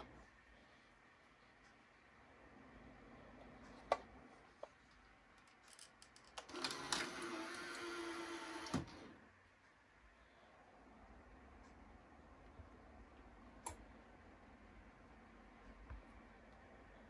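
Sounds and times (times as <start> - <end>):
motor whirring with hum: 6.5 - 9.2.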